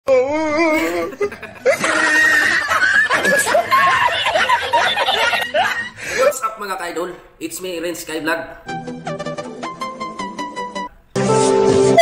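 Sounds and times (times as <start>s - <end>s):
man laughing hard: 0.5s - 6.1s.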